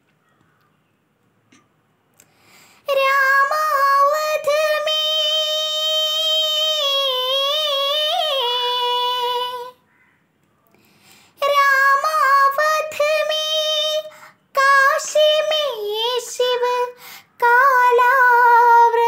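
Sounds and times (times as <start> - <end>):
girl singing unaccompanied: 2.7 - 9.9, 11.3 - 19.0.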